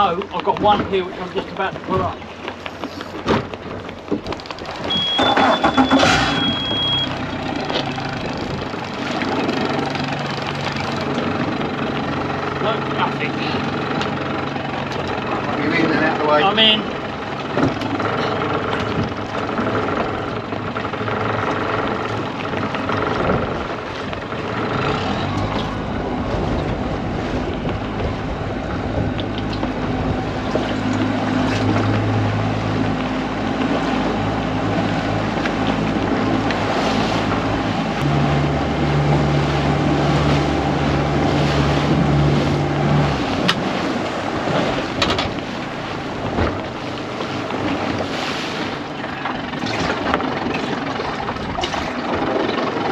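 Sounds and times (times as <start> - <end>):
boat engine running: 0.0 - 52.9
water: 0.0 - 52.9
wind buffeting microphone: 7.2 - 12.4, 21.7 - 52.9.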